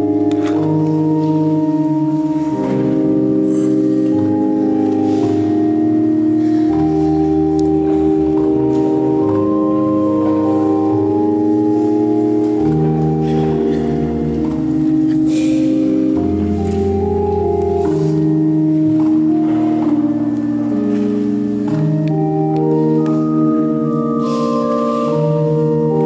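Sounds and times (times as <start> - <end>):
organ playing slow chords: 0.0 - 26.0.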